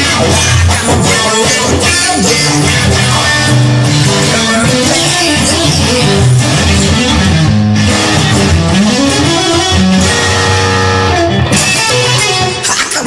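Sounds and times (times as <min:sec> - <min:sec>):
rock electric guitar: 0:00.0 - 0:13.0
low bass line: 0:02.6 - 0:11.8.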